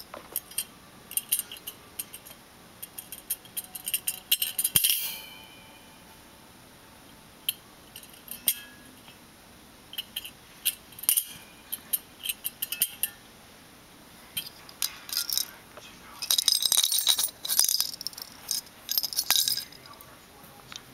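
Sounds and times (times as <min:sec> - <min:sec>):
metal clip clinking and rattling: 0:00.3 - 0:05.2, 0:09.9 - 0:13.2, 0:14.4 - 0:15.6, 0:16.2 - 0:20.0.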